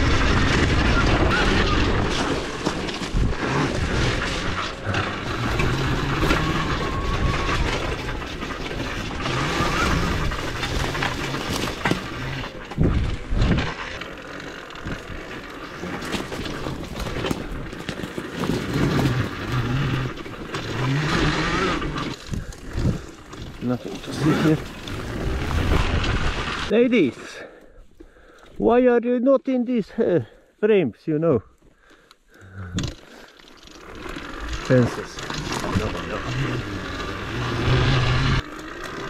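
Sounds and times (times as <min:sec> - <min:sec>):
tyres and chassis rattling: 0:00.0 - 0:28.8, 0:31.0 - 0:39.0
wind noise: 0:12.7 - 0:13.8.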